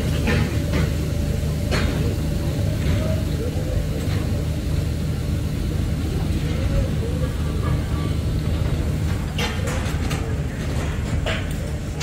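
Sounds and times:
heavy engine humming: 0:00.0 - 0:12.0.

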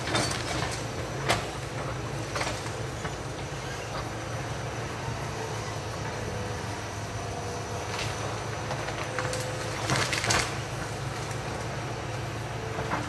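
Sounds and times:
excavator diesel engine running: 0:00.0 - 0:13.0
wood cracking and splintering: 0:08.8 - 0:11.7.

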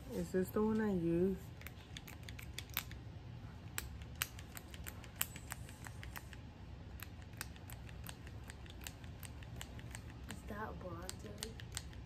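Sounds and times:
low steady hum: 0:00.0 - 0:12.0
fingertips dabbing face: 0:03.6 - 0:12.0
makeup stick clicks and taps: 0:07.0 - 0:12.0.

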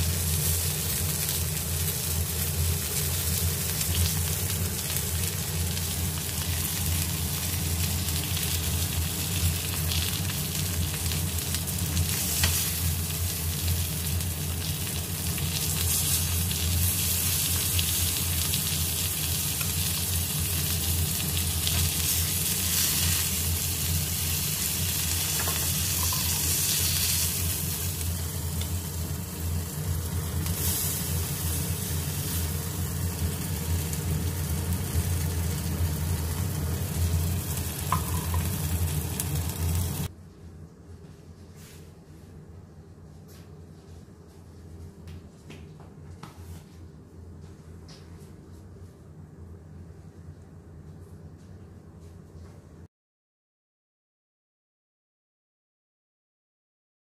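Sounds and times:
chicken sizzling on grill pan: 0:00.0 - 0:40.1.

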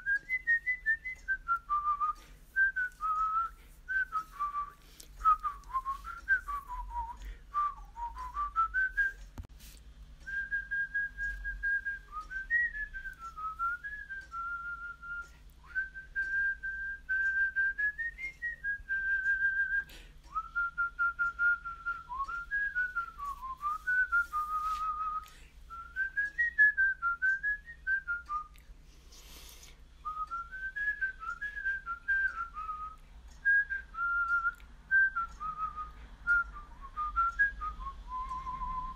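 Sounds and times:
person whistling a melody: 0:00.0 - 0:09.4, 0:10.2 - 0:38.9.

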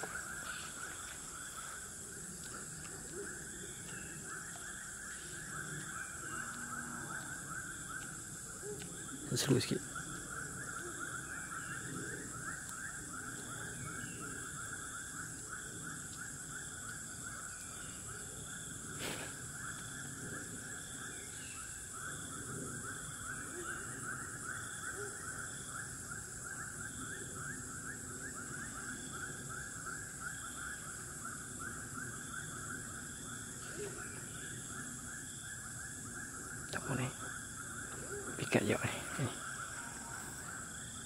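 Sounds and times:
high hiss: 0:19.0 - 0:19.4.

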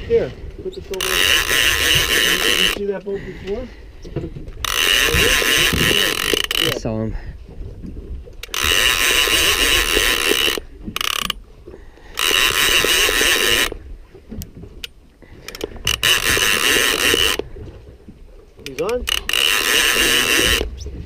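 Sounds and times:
fishing reel clicker ratcheting: 0:00.9 - 0:02.9, 0:04.6 - 0:06.8, 0:08.4 - 0:11.4, 0:12.1 - 0:13.8, 0:14.8 - 0:17.5, 0:18.6 - 0:20.7.

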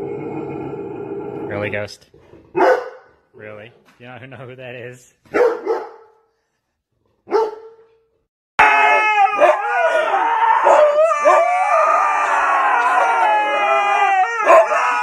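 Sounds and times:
dog howling: 0:08.6 - 0:15.0.

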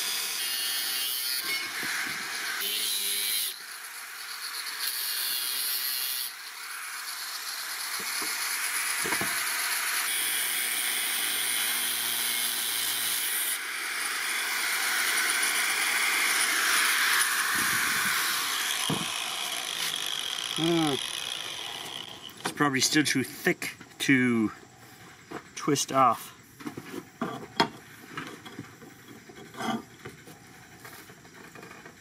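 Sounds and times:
angle grinder cutting steel: 0:00.0 - 0:22.6.

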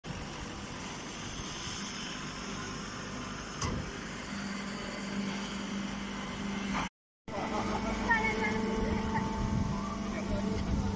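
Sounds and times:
hay baler machine drone: 0:00.1 - 0:10.9
steady hum: 0:00.1 - 0:10.9.

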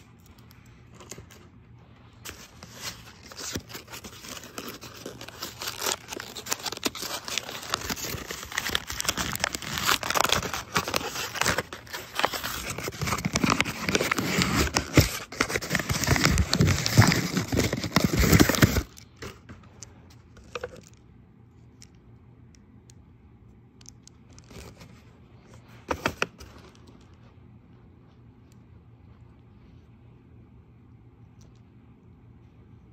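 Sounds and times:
paper bag tearing and crumpling: 0:02.7 - 0:18.9.

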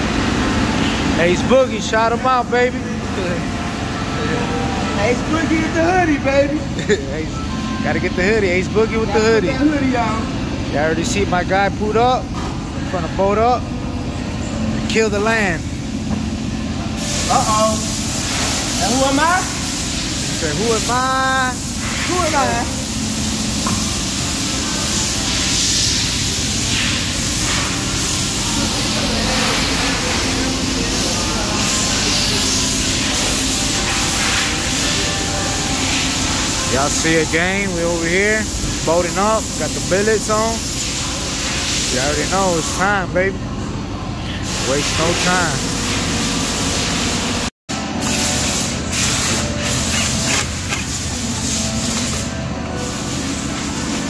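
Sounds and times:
low rumble of shop noise: 0:00.0 - 0:54.0
compressed air hissing: 0:16.9 - 0:43.1, 0:44.3 - 0:54.0
impact wrench running: 0:48.0 - 0:52.3.

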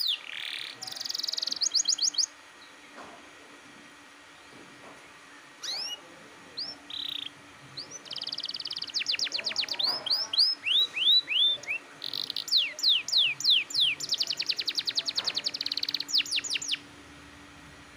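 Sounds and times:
canary singing: 0:00.0 - 0:02.8, 0:05.6 - 0:16.9.

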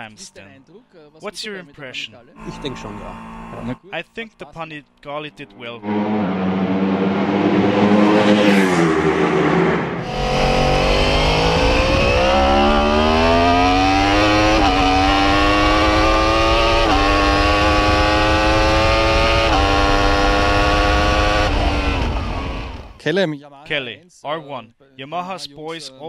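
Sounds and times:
motorcycle engine accelerating hard: 0:02.4 - 0:03.8, 0:05.8 - 0:23.0
motorcycle passing by: 0:05.8 - 0:22.8.

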